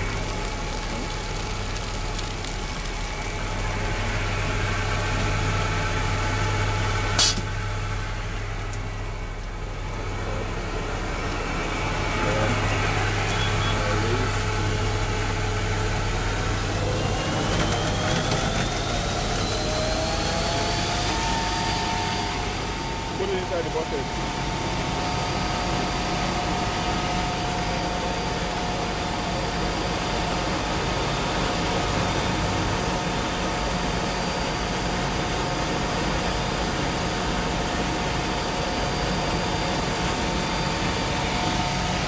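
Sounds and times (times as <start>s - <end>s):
water rushing from hose: 0.0s - 5.8s
fire truck pump and engine running: 0.0s - 42.0s.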